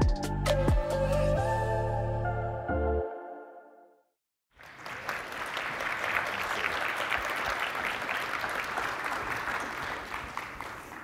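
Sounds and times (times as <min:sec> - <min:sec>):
audience applauding: 0:04.5 - 0:11.0.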